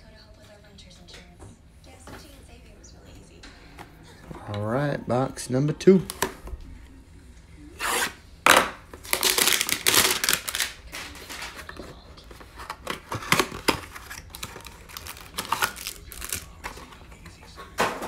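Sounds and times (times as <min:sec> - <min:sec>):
foil wrapper crinkling and tearing: 0:09.0 - 0:11.8, 0:12.8 - 0:16.9.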